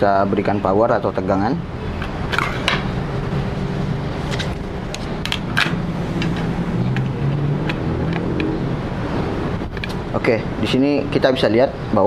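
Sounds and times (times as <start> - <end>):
test leads clicking and tapping: 4.9 - 8.6.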